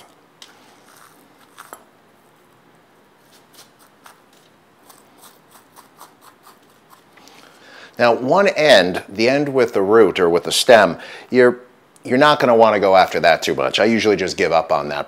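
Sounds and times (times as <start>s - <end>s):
fork scraping squash: 0.0s - 1.9s, 3.2s - 7.3s.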